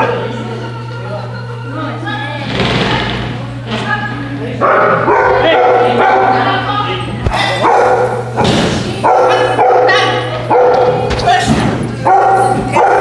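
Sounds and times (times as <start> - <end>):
small dog barking: 4.6 - 6.4, 7.3 - 8.4, 9.0 - 11.1, 12.0 - 13.0.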